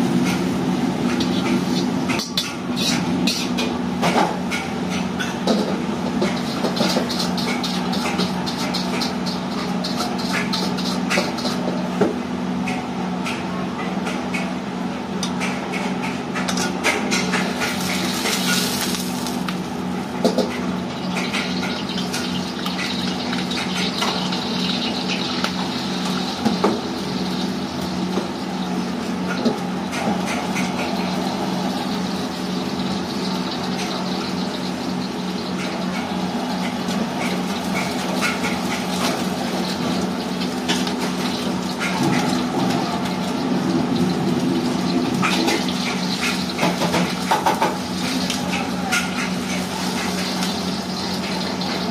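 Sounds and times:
stove and extractor fan hum: 0.0s - 51.9s
hot wok hissing and sizzling: 17.4s - 19.8s, 49.1s - 51.9s.

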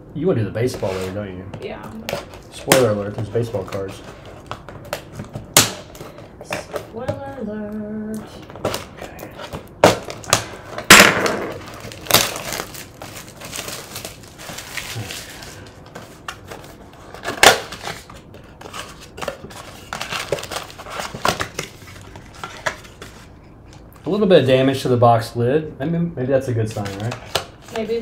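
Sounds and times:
cardboard ripping and crackling: 11.5s - 15.6s.

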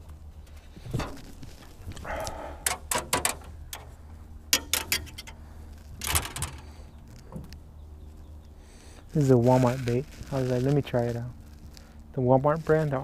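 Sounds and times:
short rustle: 5.4s - 13.0s.

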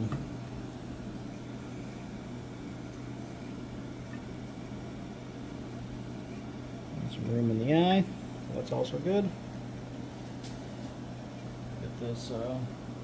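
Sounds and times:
workshop room tone hum and hiss: 0.0s - 13.0s.

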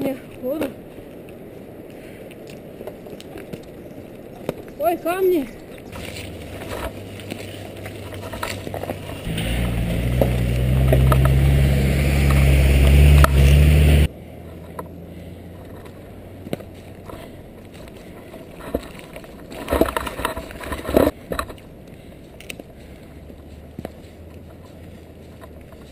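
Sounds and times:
bicycle riding noise: 0.0s - 25.9s
bike knocks and rattles: 18.6s - 21.6s.

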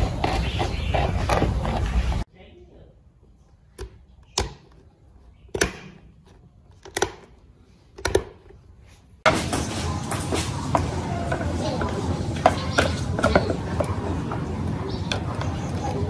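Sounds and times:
loud steady background noise: 9.3s - 16.0s.

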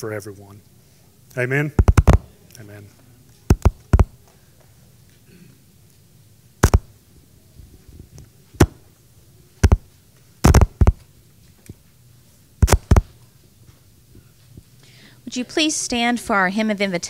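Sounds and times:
low room hum: 0.0s - 17.0s
footsteps and handling thumps: 9.6s - 11.9s, 12.6s - 14.7s.

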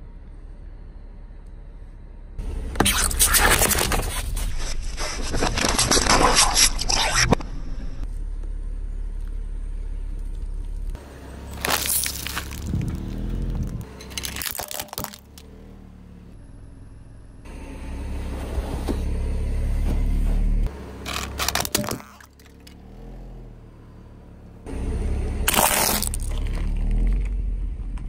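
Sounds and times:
low tyre rumble: 0.0s - 28.0s
plastic candy bag crackling: 11.6s - 12.9s
brittle tubes shattering: 11.6s - 13.2s, 14.0s - 15.4s, 21.1s - 22.7s, 25.5s - 26.6s.

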